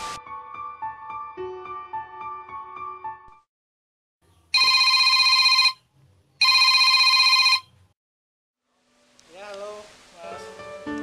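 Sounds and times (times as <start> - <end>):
telephone ringing: 4.6 - 5.8, 6.4 - 7.8.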